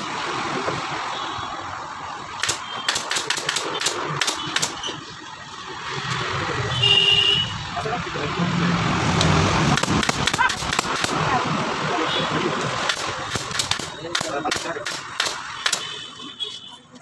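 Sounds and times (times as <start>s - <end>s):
staple gun firing: 2.4s - 4.8s, 9.8s - 11.2s, 12.9s - 15.9s.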